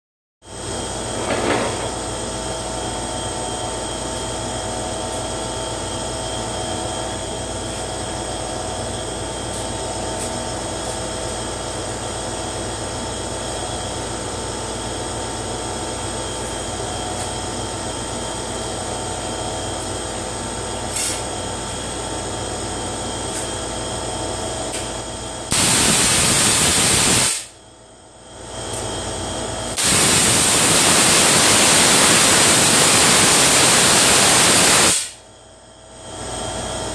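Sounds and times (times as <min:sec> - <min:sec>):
steady electrical hum: 0:15.6 - 0:36.9
tesla coil arcs crackling: 0:25.5 - 0:27.5, 0:29.8 - 0:35.2.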